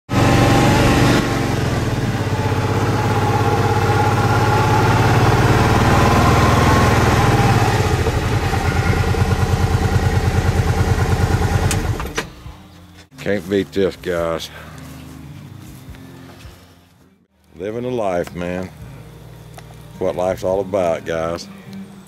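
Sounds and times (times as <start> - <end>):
vehicle engine idling: 0.1 - 12.6.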